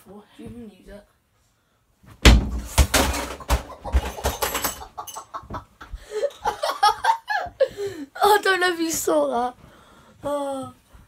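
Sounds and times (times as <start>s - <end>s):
knocks and scuffling: 2.0s - 6.0s
heavy thump: 2.2s - 3.3s.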